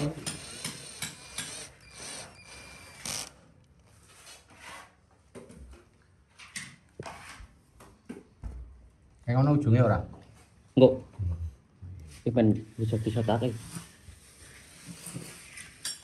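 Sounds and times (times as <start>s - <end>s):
cordless drill motor whining: 0.0s - 3.4s.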